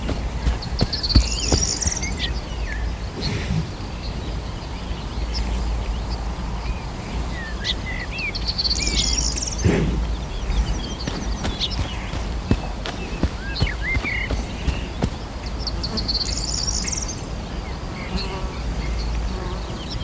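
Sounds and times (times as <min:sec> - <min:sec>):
footfalls on dirt trail: 0:00.0 - 0:02.6, 0:08.8 - 0:15.8
wind rumbling on microphone: 0:00.0 - 0:18.0
songbird trill: 0:00.0 - 0:20.0.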